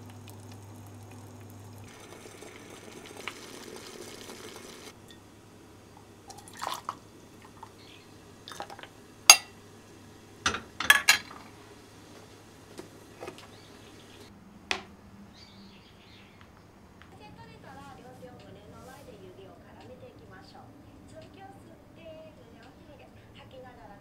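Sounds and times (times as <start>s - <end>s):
liquid dripping: 0.0s - 5.2s, 6.0s - 9.5s
glassware clicking and knocking: 8.5s - 9.5s, 10.5s - 11.3s.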